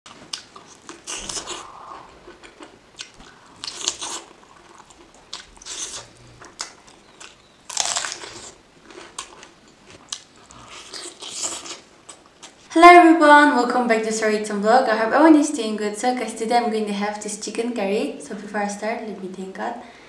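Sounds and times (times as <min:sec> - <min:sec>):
close-miked chewing: 0:00.1 - 0:12.7.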